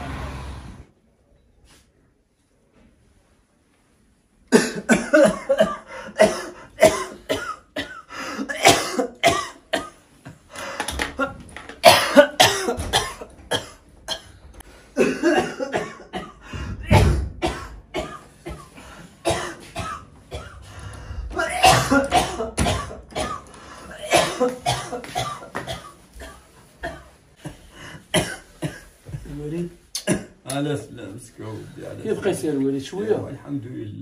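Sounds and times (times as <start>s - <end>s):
person coughing hard: 4.5s - 10.0s, 11.2s - 14.4s, 15.0s - 20.7s, 21.3s - 29.0s, 30.0s - 30.4s.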